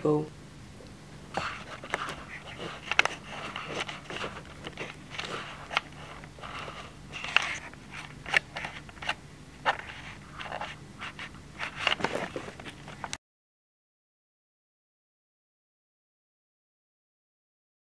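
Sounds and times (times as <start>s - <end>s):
camera handling noise: 1.5s - 6.3s, 7.2s - 13.1s.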